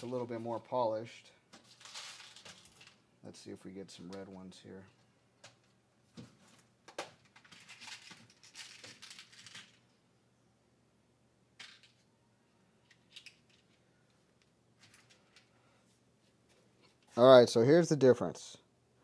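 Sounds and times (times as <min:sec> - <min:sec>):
plastic bags rustling: 0:01.6 - 0:03.0
plastic crinkling: 0:01.6 - 0:03.0, 0:07.3 - 0:09.8.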